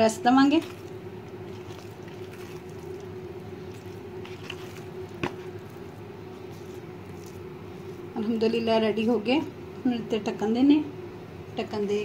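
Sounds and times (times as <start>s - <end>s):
dough squishing: 0.0s - 9.5s
steady low hum: 0.0s - 12.0s.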